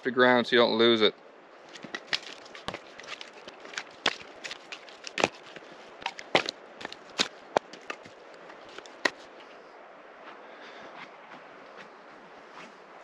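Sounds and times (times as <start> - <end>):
firewood pieces knocking together: 1.7 - 9.2.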